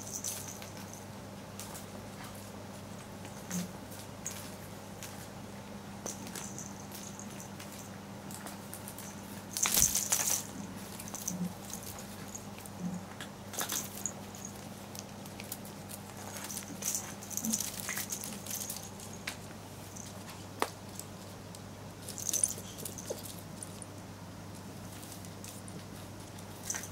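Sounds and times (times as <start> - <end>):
steady low hum: 0.0 - 26.9
cat clawing crackly toy: 6.0 - 26.9.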